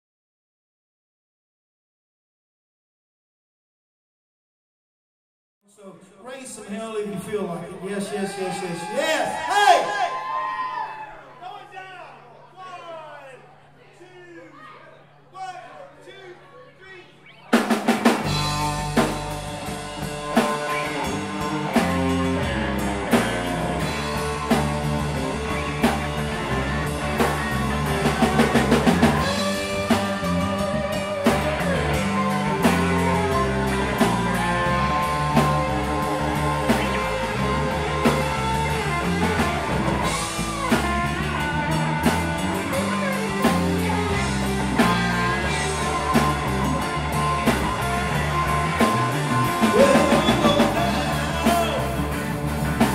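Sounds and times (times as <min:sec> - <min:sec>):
drum kit beat: 0:17.5 - 0:52.9
electric bass: 0:17.5 - 0:52.9
electric guitar with bent notes: 0:17.5 - 0:52.9.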